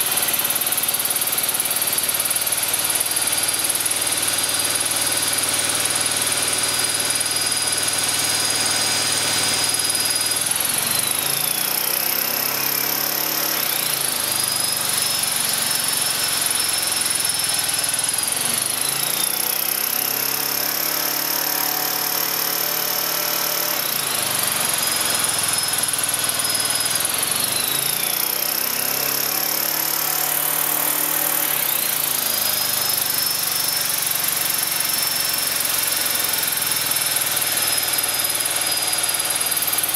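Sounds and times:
generator engine running: 0.0 - 39.9.

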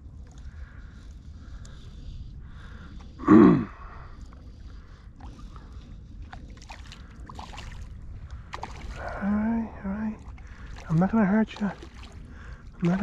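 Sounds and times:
shallow water splashes: 3.8 - 13.0.

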